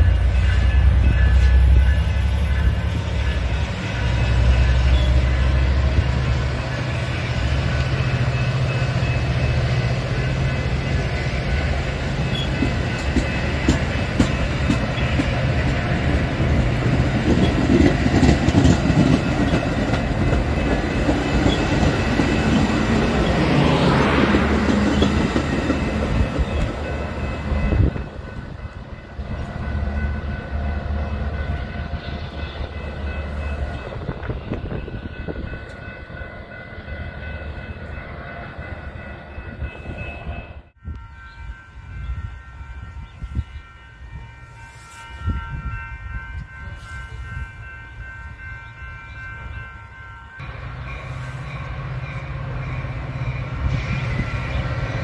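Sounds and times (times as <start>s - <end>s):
train engine rumble: 0.0s - 55.0s
train wheel clatter: 10.3s - 30.8s.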